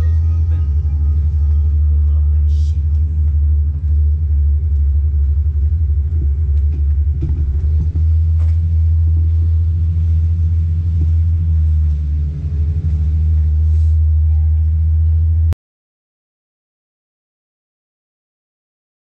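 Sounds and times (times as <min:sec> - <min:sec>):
power wheelchair motor rumble: 0:00.0 - 0:15.5.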